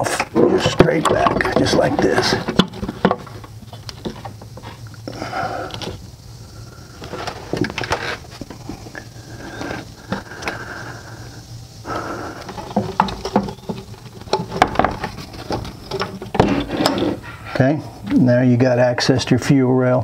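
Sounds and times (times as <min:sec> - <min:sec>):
plastic scraping: 0:00.0 - 0:04.9, 0:07.0 - 0:10.6, 0:11.9 - 0:17.4.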